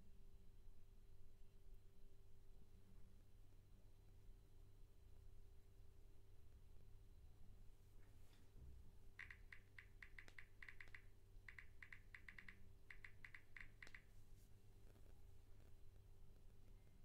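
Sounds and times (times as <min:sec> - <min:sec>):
low room hum: 0:00.0 - 0:17.0
phone keyboard taps: 0:09.2 - 0:14.1.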